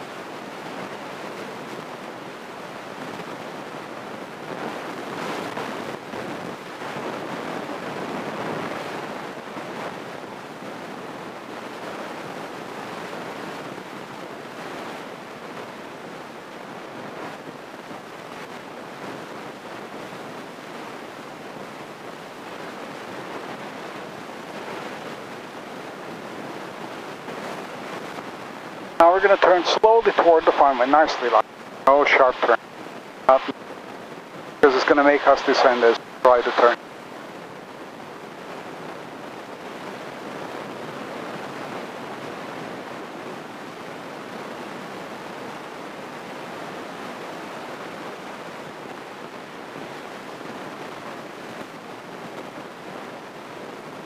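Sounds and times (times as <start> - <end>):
light plane cabin noise: 0.2 - 32.6, 34.4 - 38.2.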